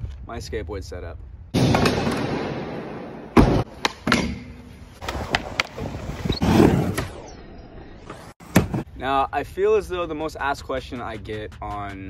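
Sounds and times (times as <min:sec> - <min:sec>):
skateboard thump: 0:01.6 - 0:05.8, 0:08.4 - 0:08.9.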